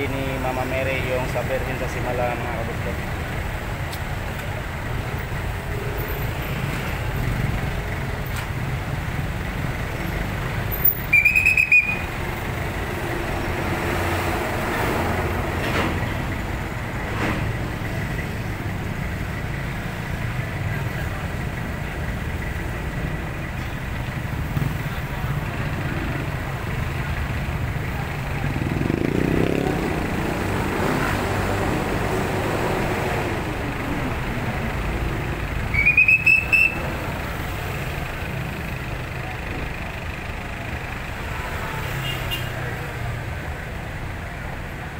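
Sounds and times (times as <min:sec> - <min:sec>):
heavy road traffic rumble: 0:00.0 - 0:44.9
shrill whistle trill: 0:11.1 - 0:12.1, 0:35.7 - 0:36.8
engine revving accelerating past: 0:28.7 - 0:33.0.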